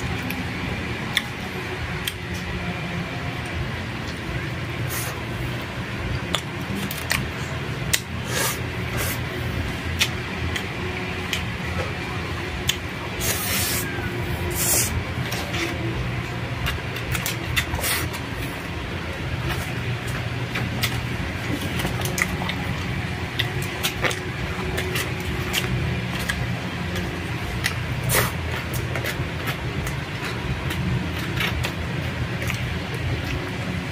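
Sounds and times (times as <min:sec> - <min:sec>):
steady low hum: 0:00.0 - 0:33.9
chewing with wet mouth clicks: 0:01.0 - 0:01.4, 0:06.1 - 0:08.1, 0:10.0 - 0:11.9, 0:12.6 - 0:13.4, 0:19.4 - 0:33.6.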